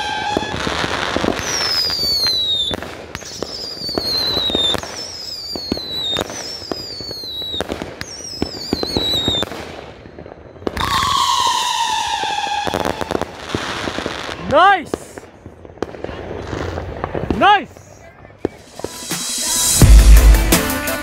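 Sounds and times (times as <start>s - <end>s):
falling firework whistles: 0.0s - 14.4s, 17.9s - 19.8s
firework pops and crackling: 0.0s - 19.8s
deep falling firework howl: 10.9s - 13.4s.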